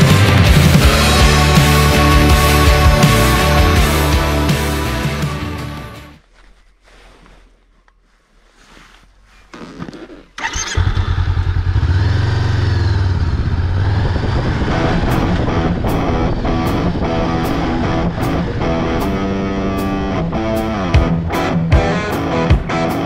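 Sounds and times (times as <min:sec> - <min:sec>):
rock music with electric guitar: 0:00.0 - 0:06.2, 0:14.5 - 0:23.0
motorcycle engine revving: 0:09.5 - 0:21.4.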